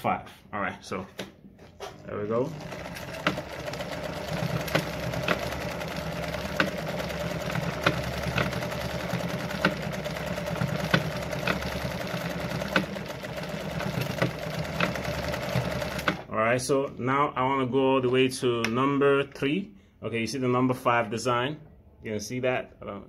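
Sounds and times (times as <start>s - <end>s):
sewing machine motor hum: 1.9s - 16.3s
sewing machine sharp clicks: 2.0s - 16.3s.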